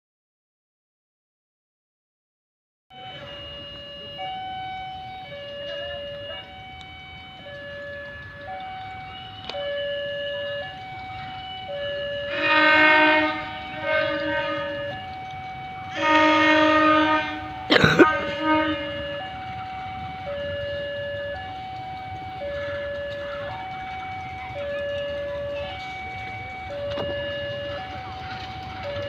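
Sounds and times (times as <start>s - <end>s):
two-tone warning alarm: 2.9s - 29.0s
locomotive horn blasts: 12.2s - 15.0s, 15.8s - 19.4s.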